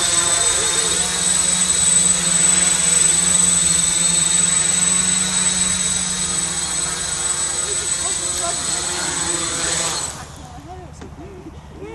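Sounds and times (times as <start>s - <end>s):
drone propellers buzzing: 0.0s - 10.7s.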